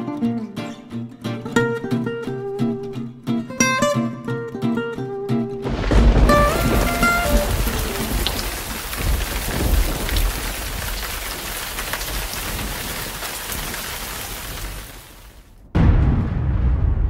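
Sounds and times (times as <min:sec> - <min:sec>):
low rumble: 0:05.7 - 0:10.4, 0:15.6 - 0:17.0
rain-like hiss: 0:05.7 - 0:15.6.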